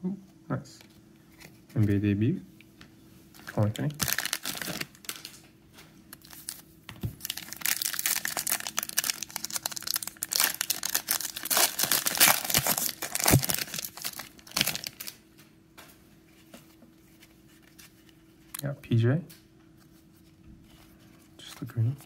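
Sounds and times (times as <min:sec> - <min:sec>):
plastic wrapper tearing and crinkling: 0:03.9 - 0:05.4, 0:06.1 - 0:15.2.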